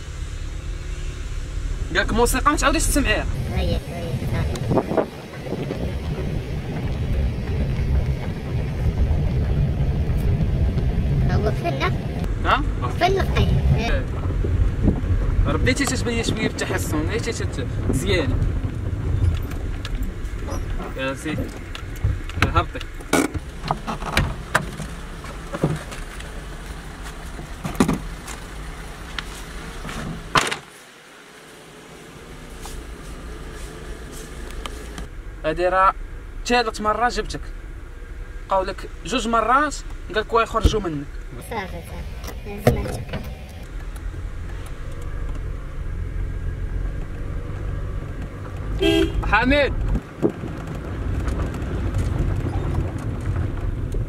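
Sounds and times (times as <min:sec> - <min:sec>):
low car rumble: 0:00.0 - 0:54.0
clicks and knocks from car door: 0:27.6 - 0:28.1, 0:29.9 - 0:30.7
car door shutting with thud: 0:27.6 - 0:28.2, 0:29.9 - 0:30.7.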